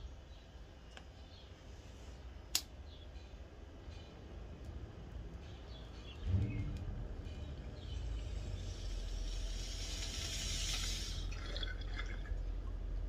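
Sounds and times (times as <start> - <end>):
water bubbling in a bong: 8.2 - 12.8.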